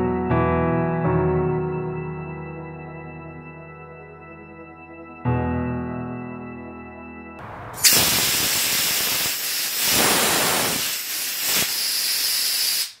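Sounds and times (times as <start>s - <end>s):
gas thruster hissing: 7.8s - 13.0s.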